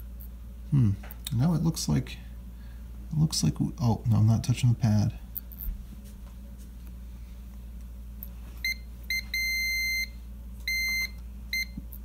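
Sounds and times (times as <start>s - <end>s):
multimeter beeping: 8.6s - 12.0s.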